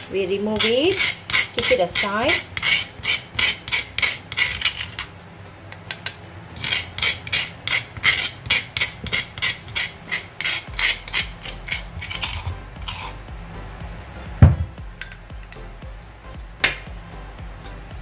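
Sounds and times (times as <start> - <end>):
metal spoon scraping stone mortar: 0.0 - 13.2.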